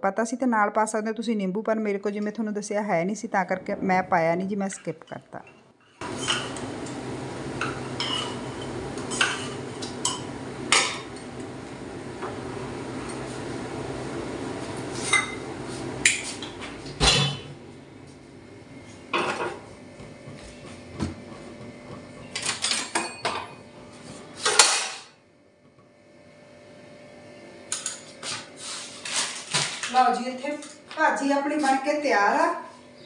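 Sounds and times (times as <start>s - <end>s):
metal cookware clanking and scraping: 4.7s - 7.0s, 7.6s - 11.2s, 15.0s - 17.6s, 22.2s - 23.6s, 24.4s - 25.1s, 27.7s - 30.0s.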